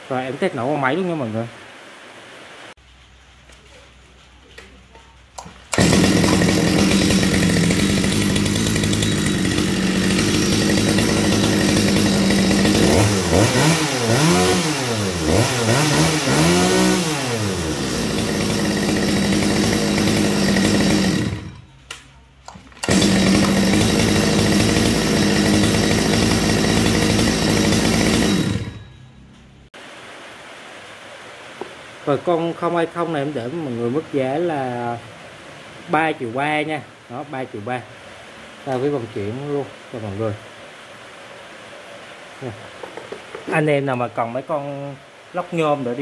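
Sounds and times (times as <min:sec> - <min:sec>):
chainsaw engine idling and revving: 0:05.4 - 0:21.8, 0:22.8 - 0:29.0.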